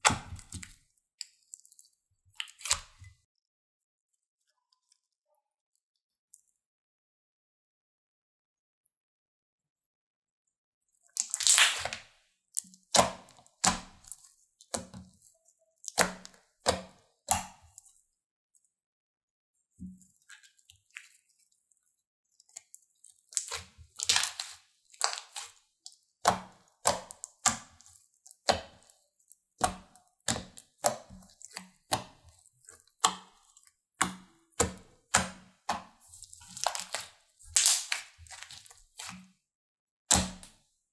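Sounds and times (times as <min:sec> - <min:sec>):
slime popping and crackling: 0:11.1 - 0:15.0, 0:22.5 - 0:25.6, 0:29.6 - 0:39.2.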